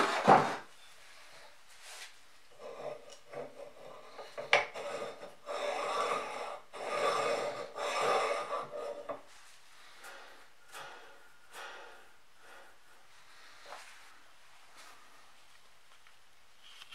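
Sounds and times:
metal scraping on rusty metal: 2.6s - 9.3s.

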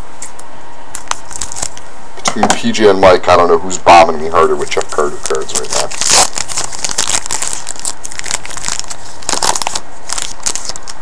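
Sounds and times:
card pack wrapper tearing: 1.0s - 1.8s, 4.4s - 11.0s.

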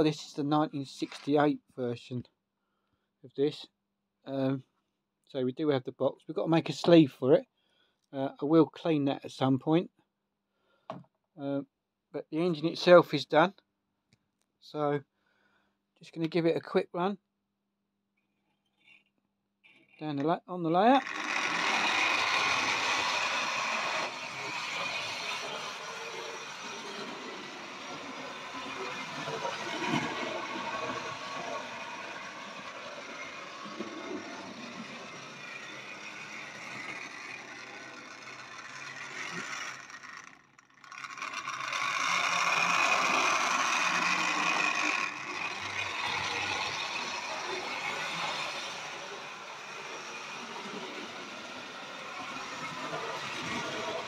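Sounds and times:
model train motor whirring: 20.9s - 54.0s
wheels rattling over rail joints: 21.0s - 54.0s.

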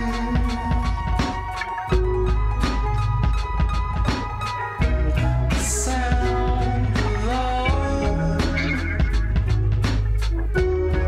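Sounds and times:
person singing: 0.0s - 2.3s, 4.8s - 9.7s
drum kit beat: 0.0s - 11.0s
indie pop song: 0.0s - 11.0s.

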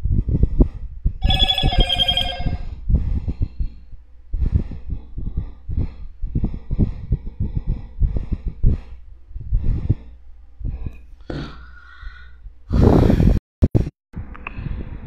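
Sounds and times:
bright bell-like chime: 1.2s - 2.6s
electronic ringtone: 1.2s - 2.7s.

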